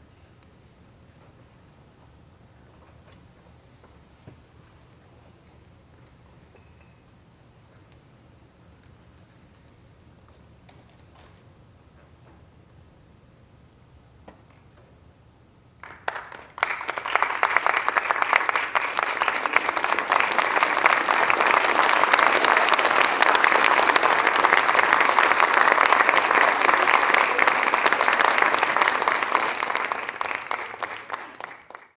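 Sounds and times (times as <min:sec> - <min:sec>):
audience applauding: 0:15.8 - 0:32.0.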